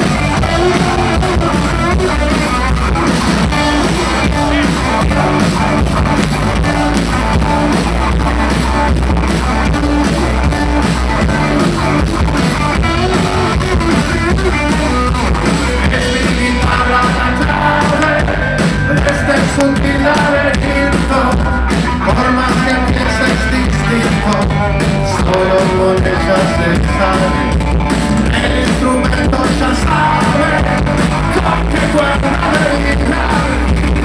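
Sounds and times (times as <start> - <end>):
rock band playing: 0.0 - 34.0
man singing: 3.5 - 5.9, 15.7 - 27.6, 28.2 - 34.0.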